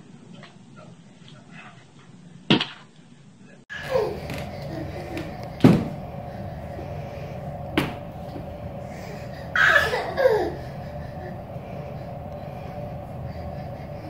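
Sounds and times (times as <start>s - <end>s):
steady hum: 3.1s - 14.0s.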